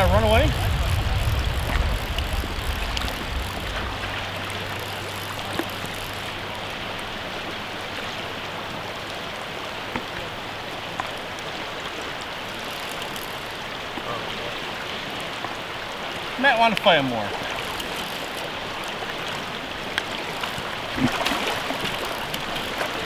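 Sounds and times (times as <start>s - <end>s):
faint clicks: 0.0s - 6.6s, 10.9s - 11.5s, 12.2s - 14.1s, 16.8s - 23.0s
low rumble: 0.0s - 7.0s
river running over stones: 0.0s - 23.0s.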